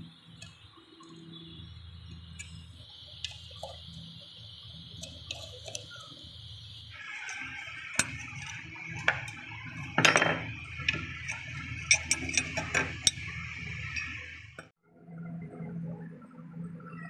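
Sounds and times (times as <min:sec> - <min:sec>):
metal clinking and scraping: 0:07.0 - 0:14.4.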